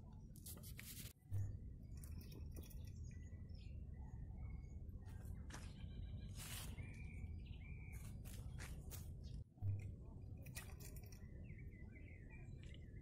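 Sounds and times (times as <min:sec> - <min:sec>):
small birds chirping: 0:00.0 - 0:13.0
steady low rumble: 0:06.8 - 0:13.0.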